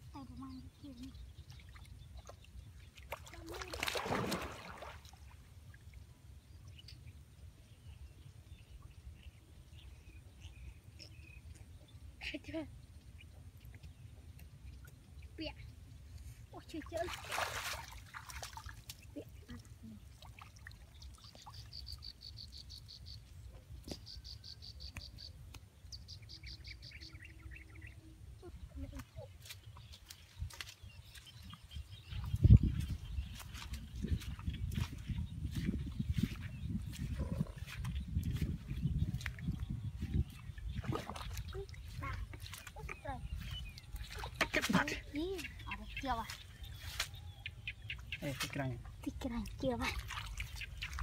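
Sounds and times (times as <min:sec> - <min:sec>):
water splashing and rushing: 0:03.0 - 0:05.4, 0:16.8 - 0:19.3, 0:40.6 - 0:45.4
wind rumble on microphone: 0:29.7 - 0:44.6.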